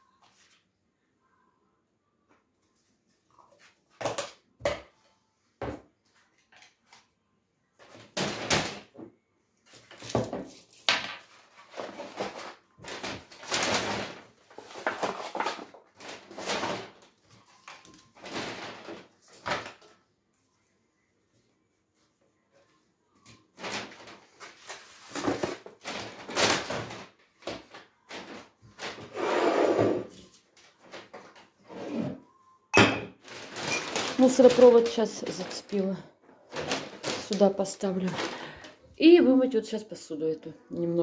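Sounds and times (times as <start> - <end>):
cardboard and paper rustling: 9.7 - 20.0, 23.2 - 29.2, 30.1 - 31.6, 33.2 - 38.8
dishes knocking: 32.8 - 33.2.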